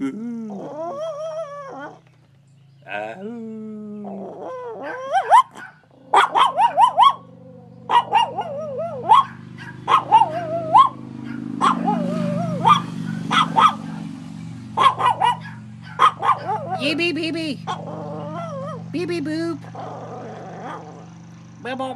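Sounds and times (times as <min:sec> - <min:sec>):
dog howling in high yips: 0:04.5 - 0:07.3, 0:07.9 - 0:13.8, 0:14.8 - 0:16.9, 0:17.7 - 0:18.9.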